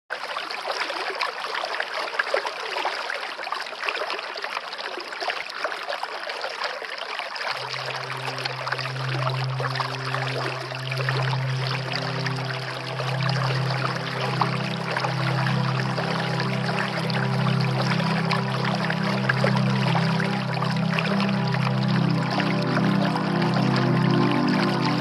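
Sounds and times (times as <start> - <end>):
river water rushing and splashing: 0.5 - 25.0
low droning tone: 7.5 - 25.0.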